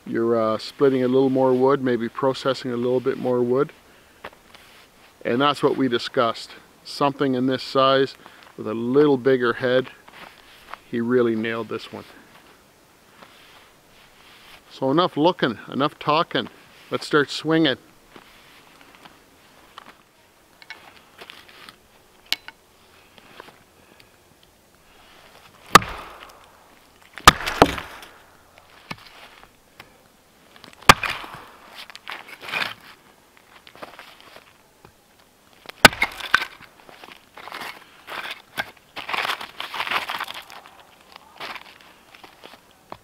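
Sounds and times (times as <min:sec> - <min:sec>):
crunching of wood and snow: 0:09.7 - 0:14.8, 0:18.1 - 0:22.0, 0:24.8 - 0:34.6, 0:35.5 - 0:43.0
wood splitting crackle: 0:24.9 - 0:29.5, 0:30.5 - 0:34.6, 0:35.2 - 0:42.6
axe chopping wood: 0:25.7 - 0:26.5, 0:27.2 - 0:28.2, 0:30.8 - 0:31.7, 0:35.8 - 0:36.6.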